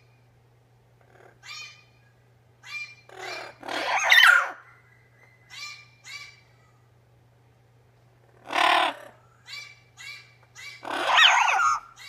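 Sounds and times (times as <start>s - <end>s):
faint low hum: 0.0s - 12.0s
parrot squawking calls: 1.0s - 2.0s, 2.6s - 6.7s, 8.3s - 12.0s.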